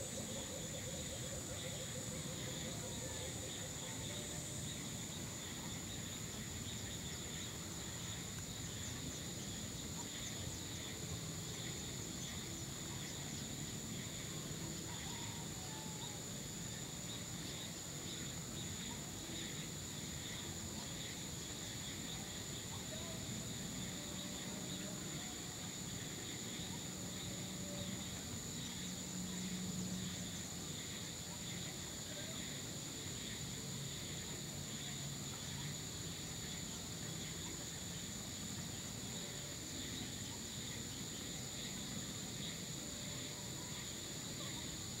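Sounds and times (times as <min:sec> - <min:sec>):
high-pitched insect trill: 0:00.0 - 0:45.0.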